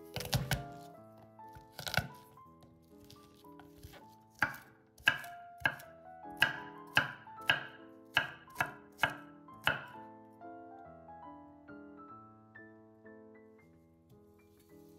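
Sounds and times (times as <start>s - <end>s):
soft piano music: 0.0s - 14.9s
knife chopping on cutting board: 0.1s - 0.8s, 1.6s - 2.2s, 3.8s - 9.9s.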